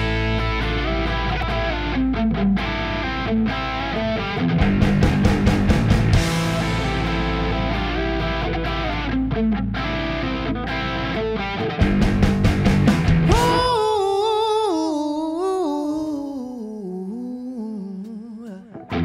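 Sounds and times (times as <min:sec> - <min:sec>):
rock band playing: 0:00.0 - 0:14.0.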